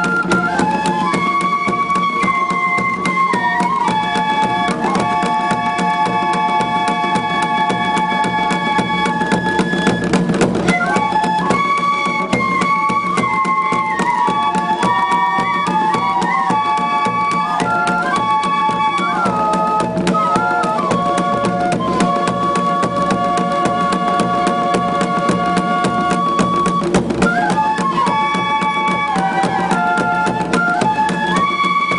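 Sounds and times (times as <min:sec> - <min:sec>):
bamboo flutes playing melody: 0:00.0 - 0:31.9
rapid drum beats: 0:00.0 - 0:31.9.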